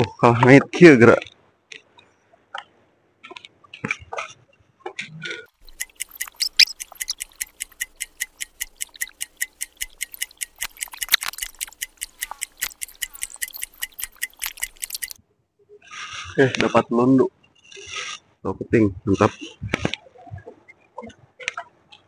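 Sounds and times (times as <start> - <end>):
faint clicks: 5.5 - 15.2
rapid clock-like ticking: 5.5 - 15.2.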